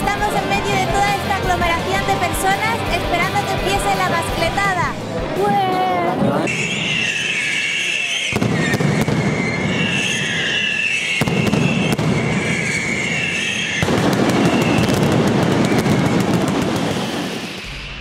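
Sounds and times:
firecrackers crackling and banging: 6.2 - 17.7
high wavering whistle: 6.4 - 13.8.

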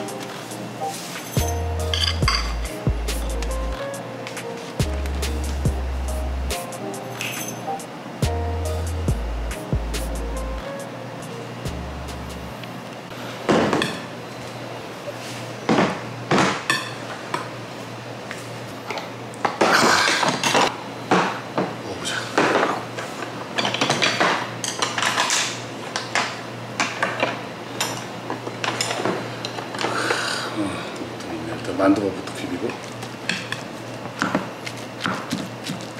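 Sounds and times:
pan and spoon clinking on bowls: 1.2 - 2.6.

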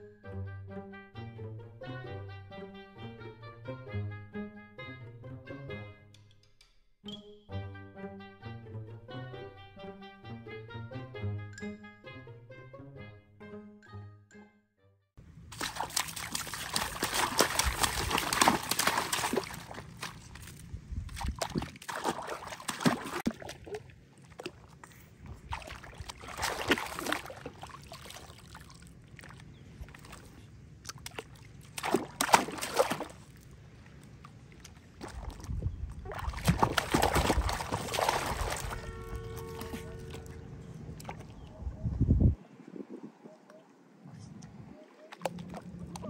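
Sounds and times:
water trickling and dripping: 15.4 - 41.5
water splashing in tub: 15.5 - 40.3, 45.1 - 46.0.

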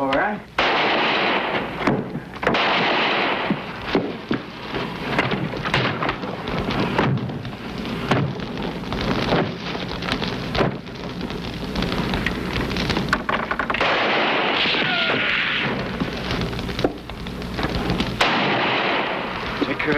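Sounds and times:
fire crackling: 0.0 - 19.9
gunshots: 0.6 - 9.8, 13.8 - 17.0, 18.2 - 19.9.

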